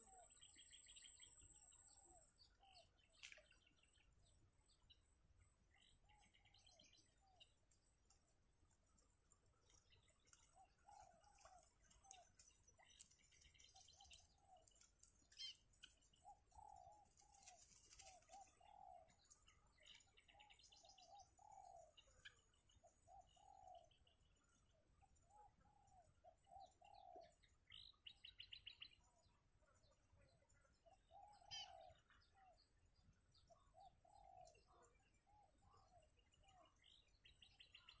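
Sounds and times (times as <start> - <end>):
faint bird calls: 30.8 - 32.6.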